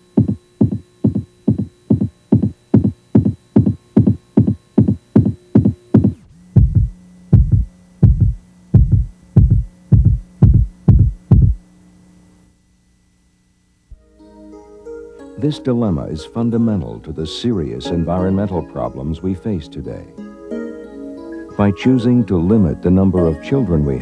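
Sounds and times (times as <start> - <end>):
throbbing electronic pulse: 0.0 - 11.6
faint hum: 0.0 - 24.0.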